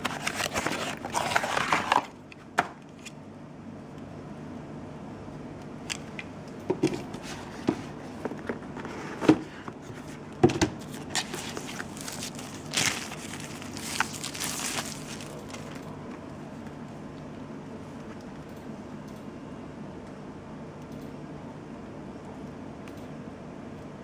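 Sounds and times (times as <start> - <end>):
plastic film crinkling: 10.9 - 15.8.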